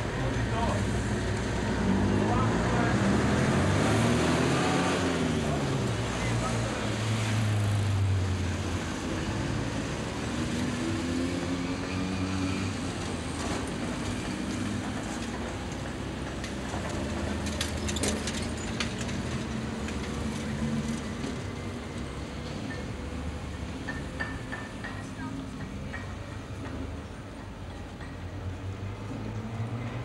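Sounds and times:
engine hum and traffic: 0.0s - 30.0s
vehicle passing close by: 1.6s - 12.9s.

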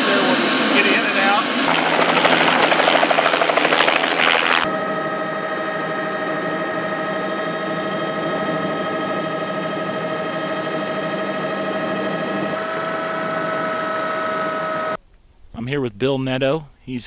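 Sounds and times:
constant high whine: 1.7s - 4.7s
helicopter cabin drone: 1.7s - 13.1s.

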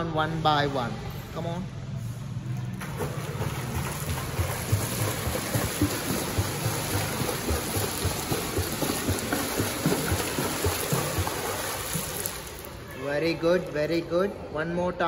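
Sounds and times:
legs splashing in pool water: 2.8s - 12.8s.

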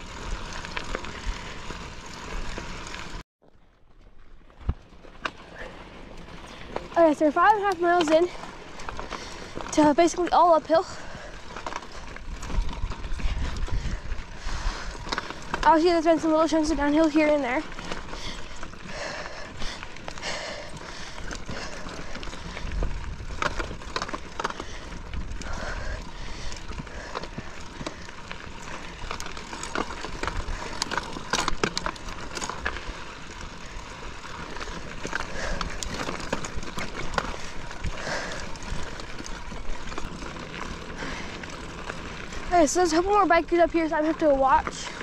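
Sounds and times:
bike rattling over rocks: 0.0s - 45.0s.

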